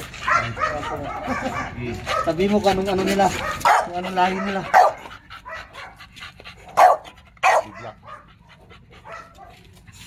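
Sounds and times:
dog panting: 0.0 - 10.0
dog barking: 0.2 - 2.4, 3.4 - 6.0, 6.7 - 8.3, 9.0 - 9.6.

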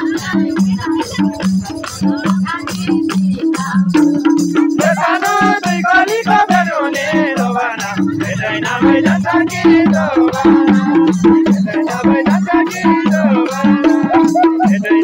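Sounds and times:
fast percussion beat: 0.0 - 15.0
person singing: 10.0 - 15.0.

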